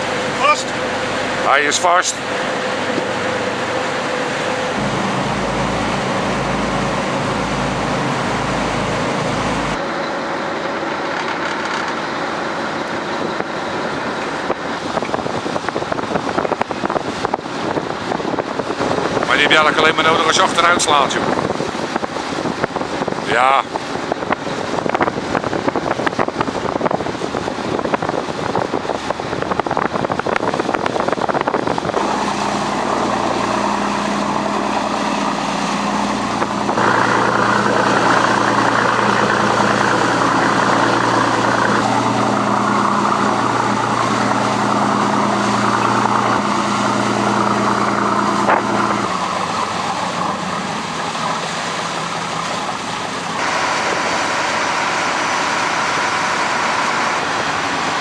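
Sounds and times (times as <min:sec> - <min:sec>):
boat engines running: 0:00.0 - 0:58.0
water rushing along hulls: 0:00.0 - 0:58.0
wind: 0:00.0 - 0:58.0.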